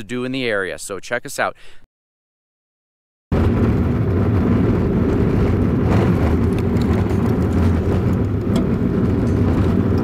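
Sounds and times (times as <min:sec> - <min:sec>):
vehicle engine and tyres rumbling: 0:03.3 - 0:10.0
gravel ticks and rattles: 0:03.4 - 0:10.0.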